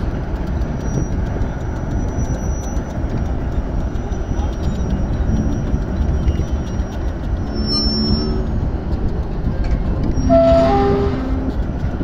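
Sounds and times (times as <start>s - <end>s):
diesel engine low rumble: 0.0s - 12.0s
metallic ringing tones: 4.0s - 8.8s.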